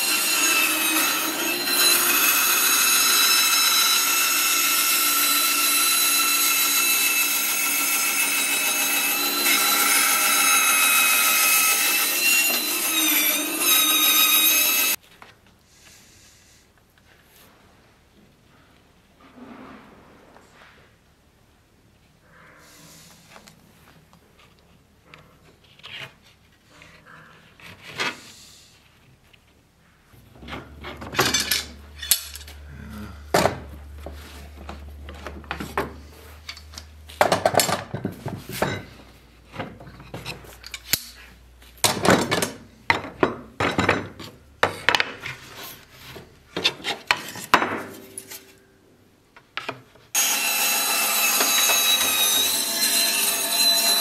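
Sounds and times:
bandsaw cutting wood: 0.0s - 15.0s, 50.2s - 54.0s
wood and tools knocking and scraping: 30.2s - 32.6s, 33.3s - 48.6s, 49.3s - 54.0s.

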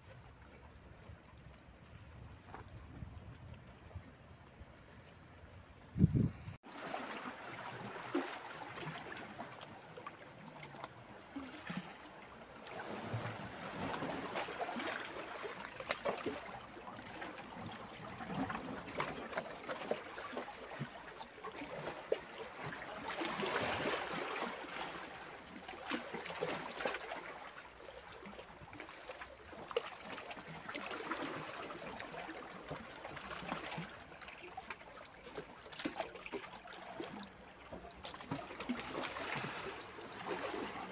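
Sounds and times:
light water splashes: 0.0s - 40.9s
small waves lapping among boulders: 0.0s - 40.9s.

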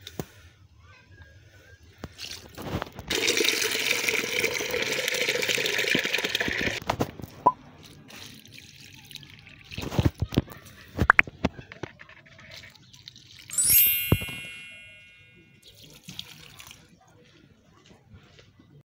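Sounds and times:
tap water filling plastic jug: 2.1s - 7.0s.

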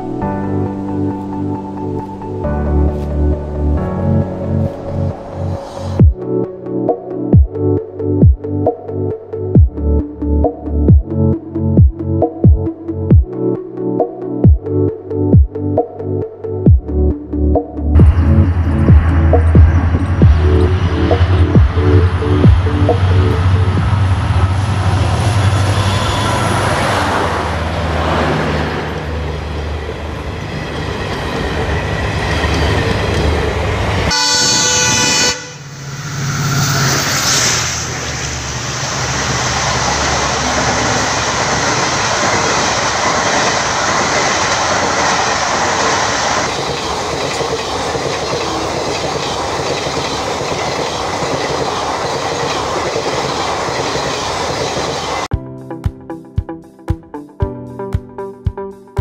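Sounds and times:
diesel locomotive engine hum: 0.0s - 9.3s, 17.6s - 55.3s
train horn blast: 23.4s - 27.4s, 34.1s - 37.5s
train wheels clattering on rails: 39.3s - 55.3s.

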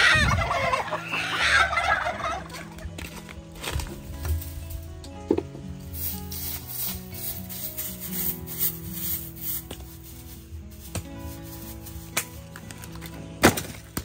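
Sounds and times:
soft background music: 0.0s - 14.0s
scraping inside clay oven: 5.8s - 14.0s.

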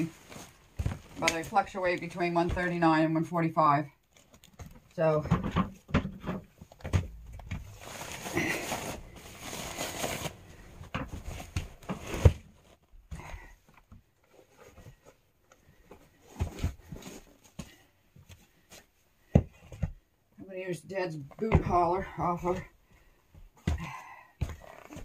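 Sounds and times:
rustling crinkling handling noise: 0.0s - 2.8s, 4.0s - 5.0s, 5.8s - 13.1s
soft knocks and thumps: 4.6s - 7.7s, 19.2s - 20.1s.

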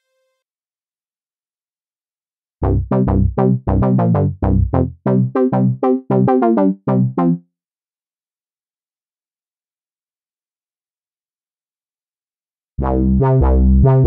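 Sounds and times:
synthesizer plucked notes: 2.6s - 7.4s, 12.8s - 14.0s.

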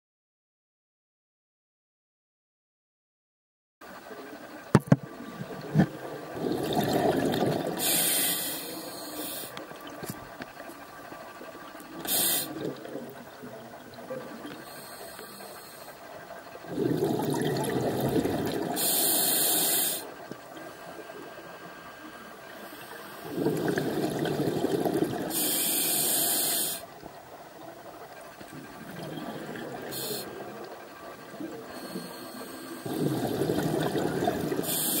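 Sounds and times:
diver breathing through regulator: 5.6s - 9.6s, 10.9s - 13.2s, 14.2s - 20.2s, 20.8s - 26.9s, 29.0s - 35.0s.

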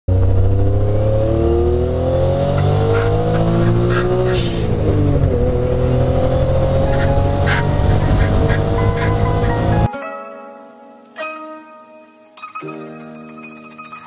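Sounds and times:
car engine revving hard: 0.1s - 9.9s.

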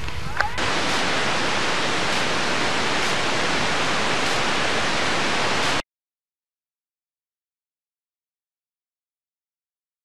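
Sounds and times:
tape static hiss: 0.0s - 5.8s.

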